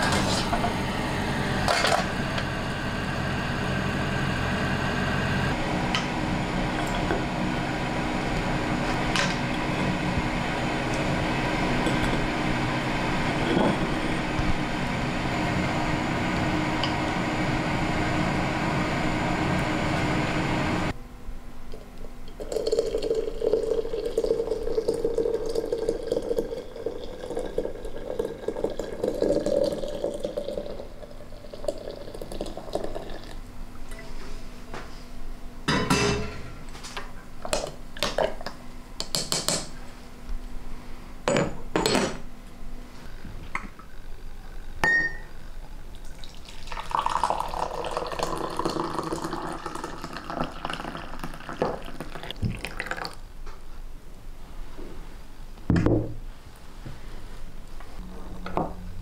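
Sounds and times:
water pouring into teapot: 22.4s - 33.4s, 45.9s - 53.2s.

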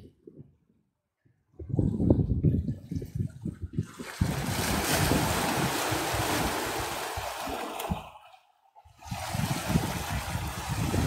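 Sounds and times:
wind rumble on microphone: 0.0s - 8.2s, 8.8s - 11.0s
waves breaking on rocks: 3.9s - 8.3s, 9.0s - 11.0s.

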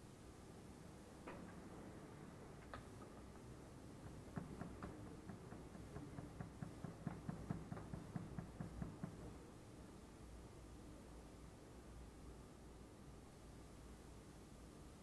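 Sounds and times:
light taps: 2.6s - 9.3s.

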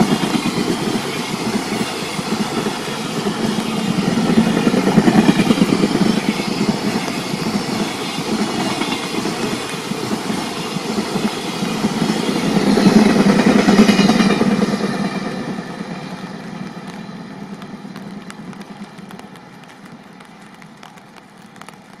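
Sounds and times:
freight train rushing past: 0.0s - 22.0s.

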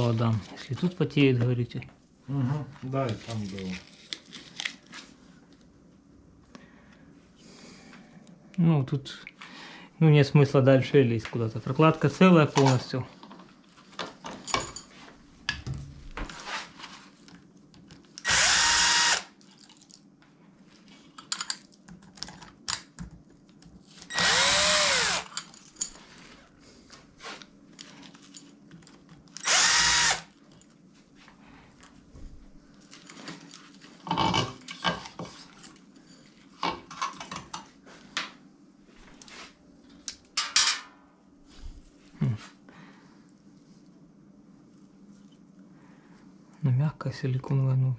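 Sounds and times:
cordless drill whining: 18.2s - 19.3s, 24.1s - 25.3s, 29.4s - 30.3s.

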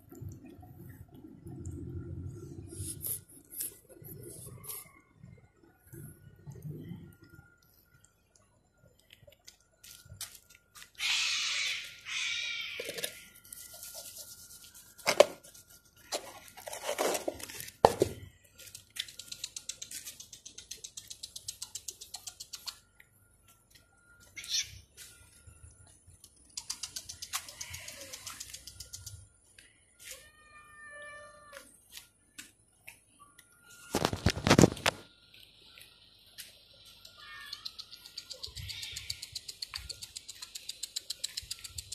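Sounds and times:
cats meowing: 30.0s - 31.7s, 37.0s - 37.9s
faint steady high tone: 33.0s - 39.1s.

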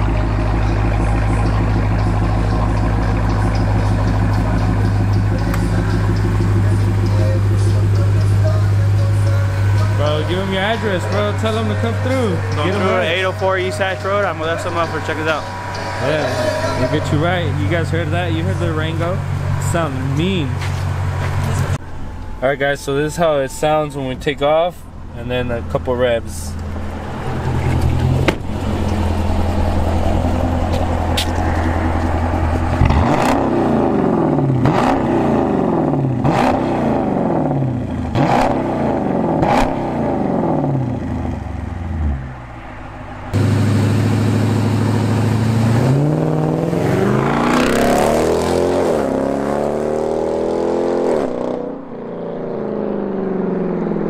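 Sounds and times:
engine revving: 0.0s - 21.8s, 25.2s - 54.0s
car pulling away hard: 0.0s - 23.6s, 24.9s - 54.0s
car engine idling: 0.0s - 49.4s.

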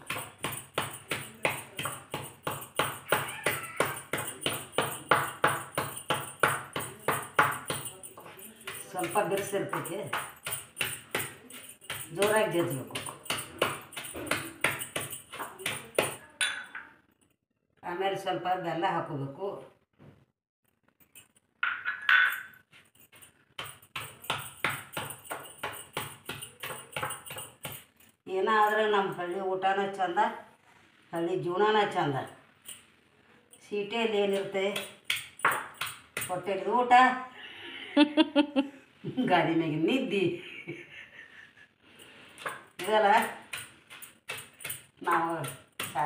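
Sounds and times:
stone pestle pounding in mortar: 0.0s - 16.6s, 23.6s - 27.8s, 34.4s - 36.5s, 42.4s - 46.0s.

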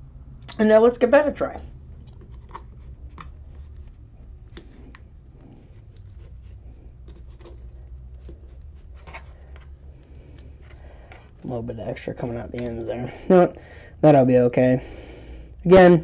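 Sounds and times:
steady low hum: 0.0s - 16.0s
hands handling tortillas: 1.9s - 11.5s.

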